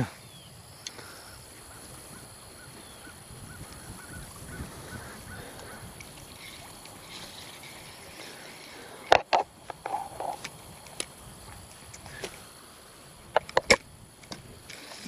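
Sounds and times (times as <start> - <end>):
bird calling: 0.0 - 10.5.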